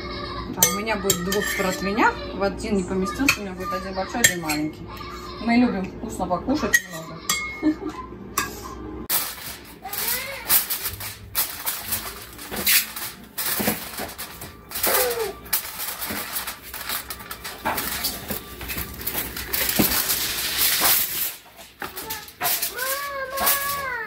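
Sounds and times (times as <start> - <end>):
aluminium foil crinkling: 9.1 - 24.0.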